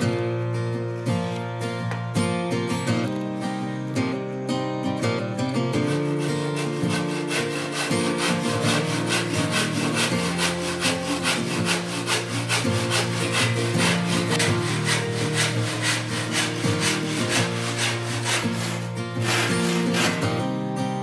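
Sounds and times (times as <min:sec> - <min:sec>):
acoustic guitar music: 0:00.0 - 0:21.0
hand saw cutting wood: 0:05.7 - 0:20.5.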